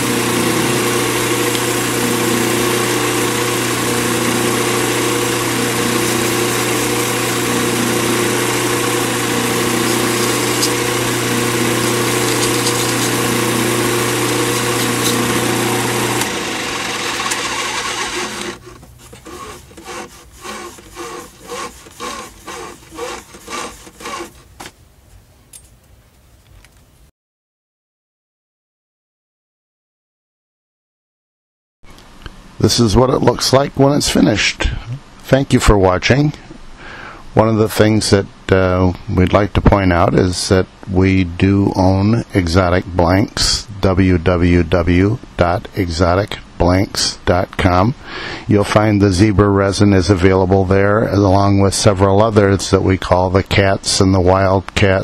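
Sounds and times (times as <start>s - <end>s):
lathe motor running: 0.0s - 24.5s
pad rubbing spinning wood: 0.0s - 24.7s.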